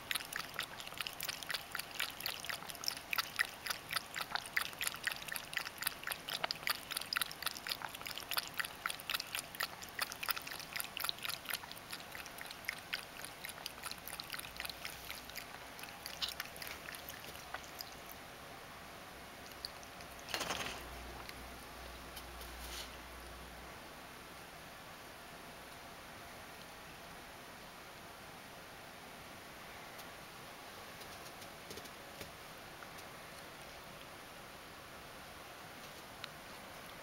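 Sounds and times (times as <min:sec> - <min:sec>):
cat lapping water: 0:00.0 - 0:18.2, 0:19.3 - 0:21.8.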